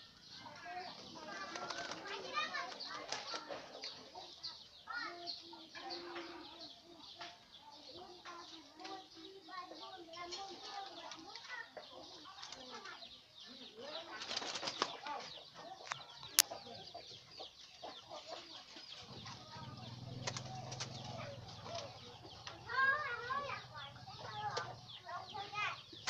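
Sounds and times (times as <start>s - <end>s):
doves chirping: 0.0s - 26.0s
warbling bird calls: 0.0s - 26.0s
wing flaps: 1.0s - 3.6s, 14.0s - 15.3s, 19.0s - 22.1s.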